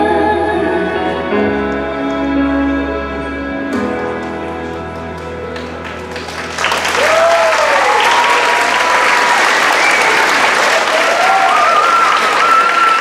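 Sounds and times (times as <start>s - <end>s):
audience applauding: 4.2s - 13.0s
cheering whoops: 6.7s - 13.0s.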